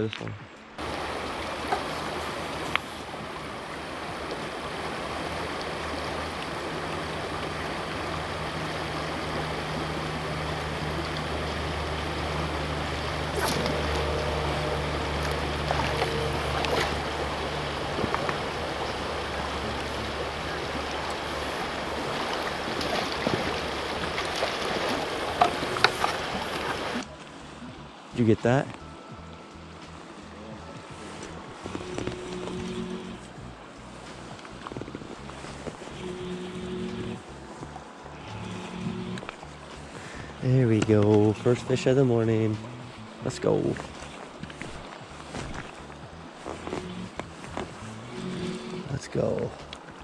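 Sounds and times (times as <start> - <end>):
creek water rushing: 0.6 - 50.0
low hum: 0.6 - 50.0.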